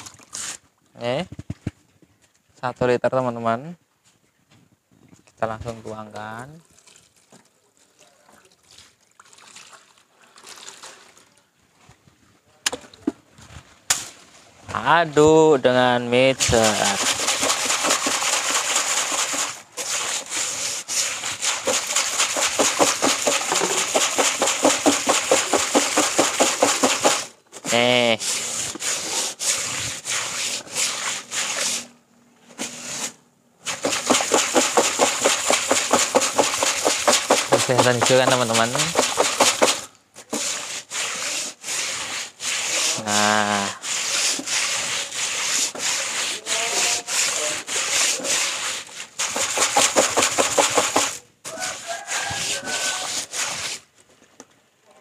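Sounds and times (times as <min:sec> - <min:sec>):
water pouring into plastic basin: 0:00.0 - 0:00.6, 0:06.1 - 0:11.5, 0:16.4 - 0:27.3, 0:33.7 - 0:39.9, 0:47.1 - 0:53.8.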